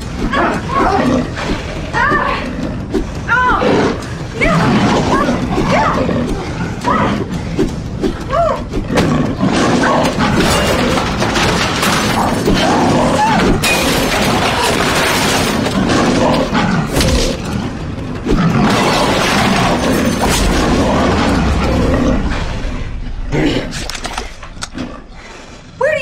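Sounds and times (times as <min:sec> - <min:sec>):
people grunting and crying out: 0:00.0 - 0:24.4
film score music: 0:00.0 - 0:26.0
monster roaring: 0:03.6 - 0:07.4, 0:08.6 - 0:25.1
heavy hits and crashes: 0:08.9 - 0:17.5, 0:18.2 - 0:24.7.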